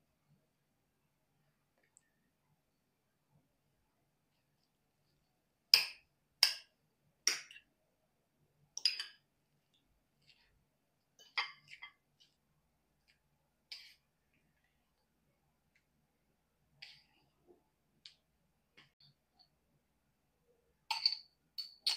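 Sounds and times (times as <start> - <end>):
metal spoon clinking on glass bowl: 20.9 - 21.9.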